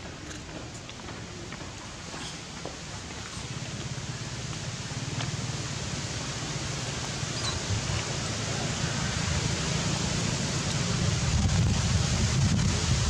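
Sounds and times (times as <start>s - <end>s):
wind buffeting microphone: 11.0s - 13.0s.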